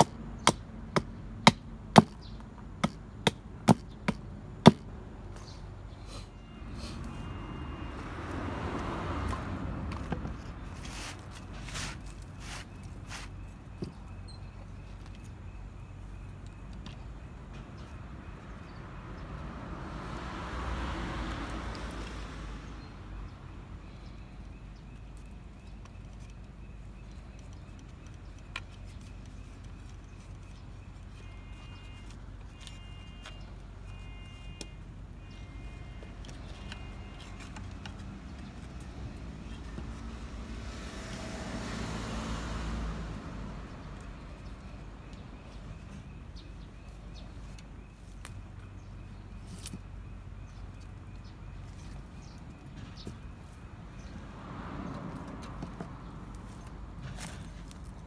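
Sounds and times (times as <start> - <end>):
road traffic hum: 0.0 - 58.0.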